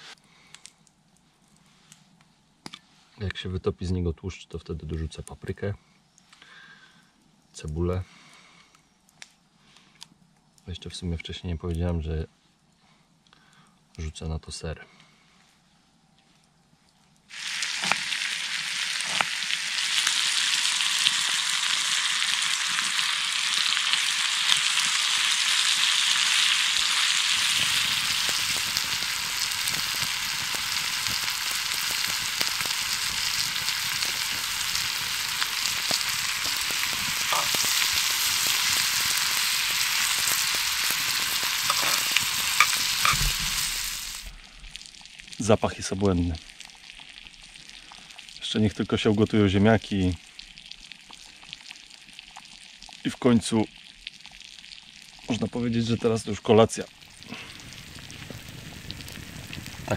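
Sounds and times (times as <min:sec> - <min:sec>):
bacon sizzling in a pan: 0:17.3 - 0:59.9
fat popping and crackling: 0:17.6 - 0:48.3, 0:56.8 - 0:59.9.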